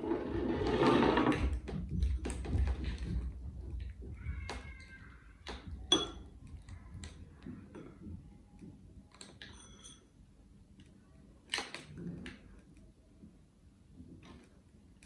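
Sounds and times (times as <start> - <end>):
paintbrush clinking against bowl: 5.9 - 6.3, 9.4 - 10.3.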